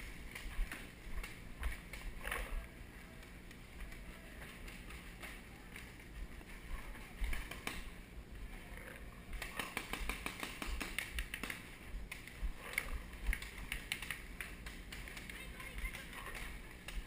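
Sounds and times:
paintball markers firing: 0:09.3 - 0:17.0.

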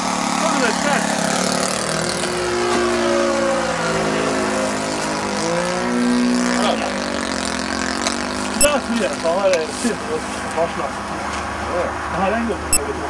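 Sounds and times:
model plane engine running: 0:00.0 - 0:10.2.

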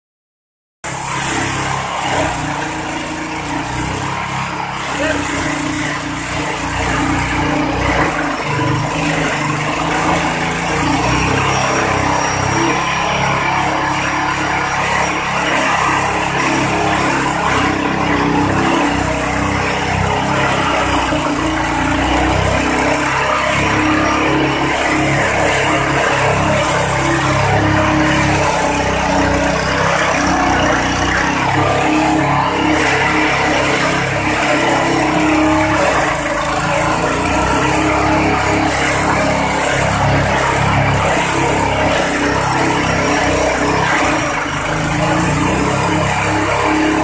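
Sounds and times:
small engine running: 0:00.8 - 0:47.0
grass shredding: 0:00.9 - 0:47.0.

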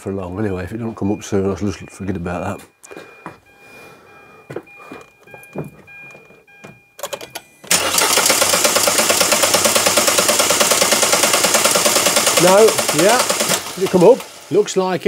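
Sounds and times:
engine cranking on starter motor: 0:07.0 - 0:14.7.

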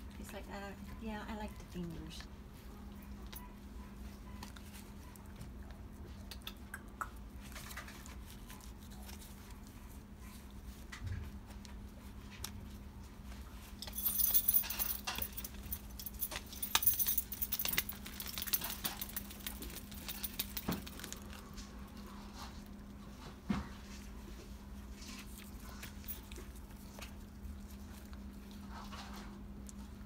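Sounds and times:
plastic cone collar rustling: 0:07.5 - 0:22.7.

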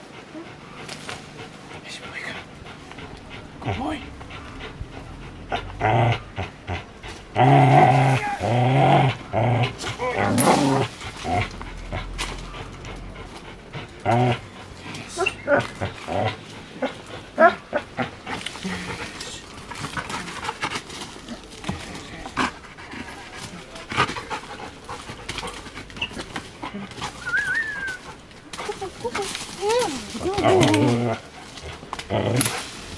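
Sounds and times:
dog panting: 0:00.0 - 0:07.9, 0:08.5 - 0:32.9
dog growling and whining: 0:03.6 - 0:13.2, 0:14.0 - 0:19.0, 0:26.0 - 0:32.6
scuffling: 0:16.8 - 0:32.9.

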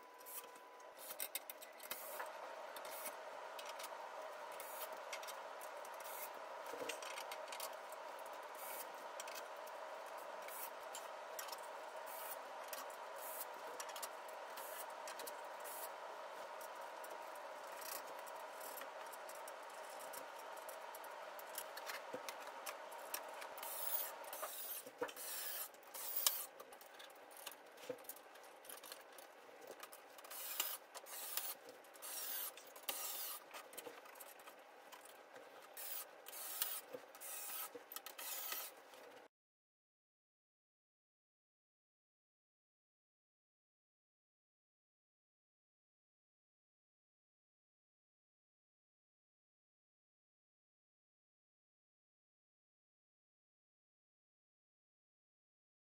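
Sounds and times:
faint steady hum: 0:00.0 - 0:37.5
metal parts rubbing and scraping: 0:30.2 - 0:34.5, 0:35.8 - 0:38.8.

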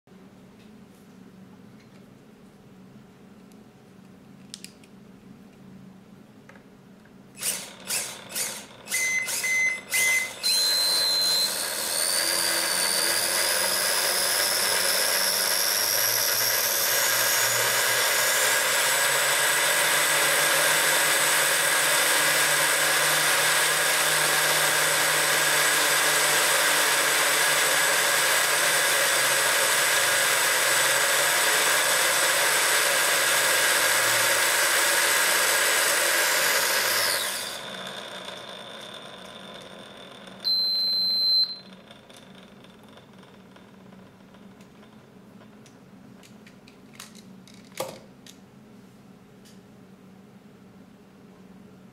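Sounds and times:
electric motor whine: 0:07.4 - 0:44.3
short beeps: 0:40.4 - 0:41.7.

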